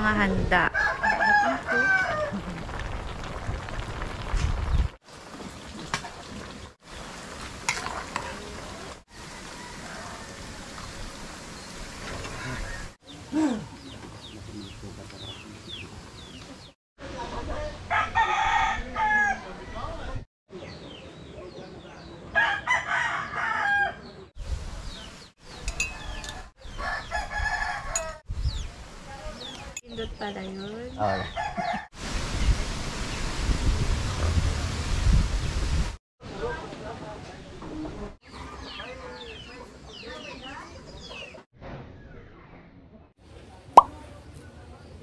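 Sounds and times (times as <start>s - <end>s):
rooster crowing: 0.7s - 2.4s, 9.1s - 10.6s, 17.9s - 19.6s, 22.4s - 24.2s, 25.9s - 28.2s, 31.4s - 31.9s
food sizzling in hot oil: 2.0s - 12.0s
small birds chirping: 10.8s - 16.8s.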